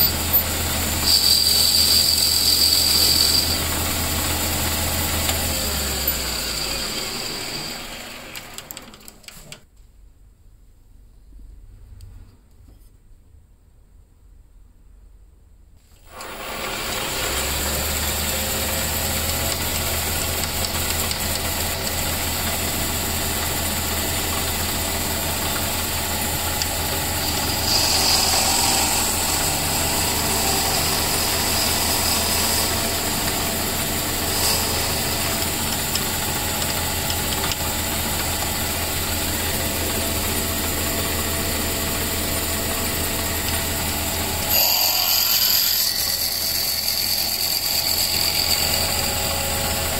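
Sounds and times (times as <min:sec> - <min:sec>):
drill cutting into cue: 0:00.0 - 0:08.8, 0:16.0 - 0:39.2, 0:43.4 - 0:49.9
lathe motor humming: 0:00.0 - 0:09.1, 0:16.1 - 0:49.9.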